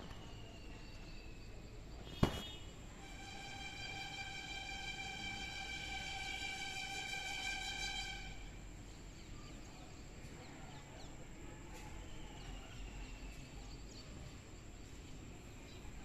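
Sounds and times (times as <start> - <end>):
faint bird chirps: 0.0 - 2.7
held steady tone: 3.0 - 8.7.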